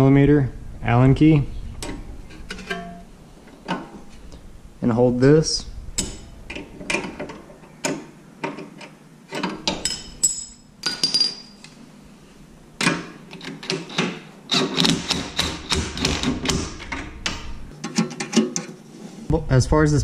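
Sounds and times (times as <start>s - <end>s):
impact wrench hammering: 6.0s - 6.3s, 14.5s - 17.6s.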